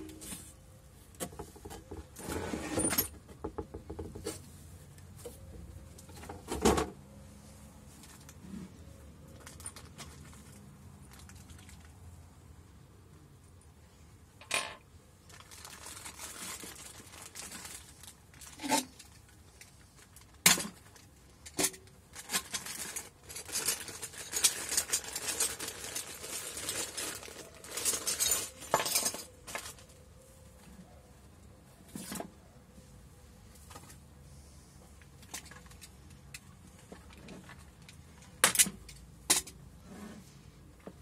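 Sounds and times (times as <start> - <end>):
plastic bag crinkling: 15.2 - 21.0, 22.1 - 29.9
steel bolts and nuts clinking: 27.6 - 29.6.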